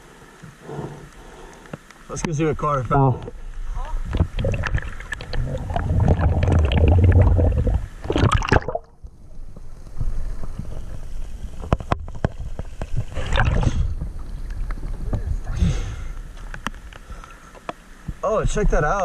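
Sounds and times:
underwater bubbling: 0:03.2 - 0:15.2
underwater clicks: 0:04.1 - 0:08.9
river water splashing: 0:04.2 - 0:09.0.

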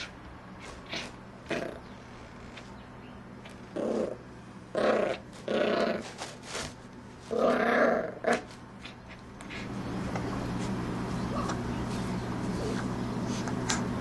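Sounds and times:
puppy play-growling: 0:00.0 - 0:02.7, 0:03.4 - 0:09.8.

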